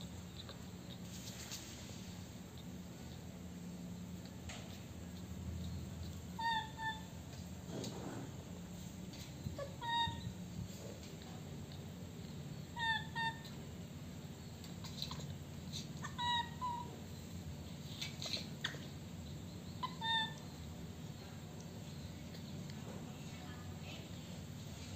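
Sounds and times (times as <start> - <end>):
steady low hum: 0.0 - 24.9
baby macaque high-pitched calls: 6.3 - 7.2, 9.4 - 10.4, 12.6 - 13.6, 14.7 - 17.0, 19.8 - 20.6.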